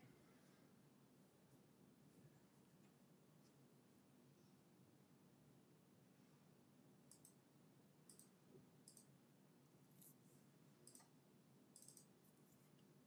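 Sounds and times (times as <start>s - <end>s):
soft high clicks: 7.1s - 7.4s, 8.0s - 9.2s, 10.8s - 12.6s.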